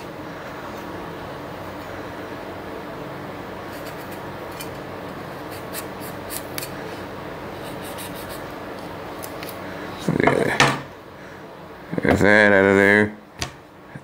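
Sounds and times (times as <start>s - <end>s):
steady low hum: 0.0s - 14.0s
knife cutting a tomato: 3.7s - 4.8s, 5.4s - 6.8s.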